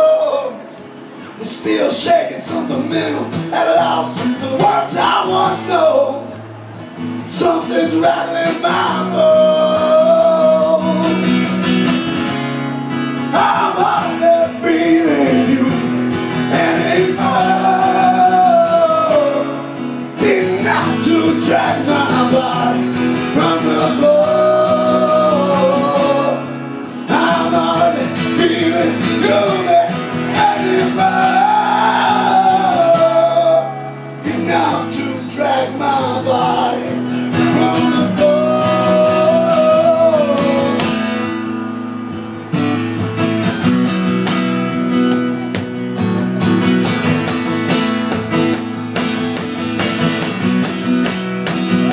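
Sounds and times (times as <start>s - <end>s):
strummed acoustic guitar: 0.0s - 51.9s.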